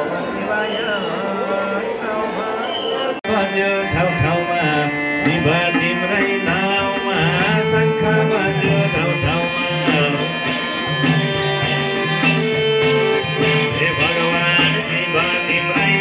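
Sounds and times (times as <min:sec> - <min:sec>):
devotional music over loudspeakers: 0:00.0 - 0:16.0
person singing: 0:00.0 - 0:16.0
hand drum beats: 0:05.3 - 0:16.0.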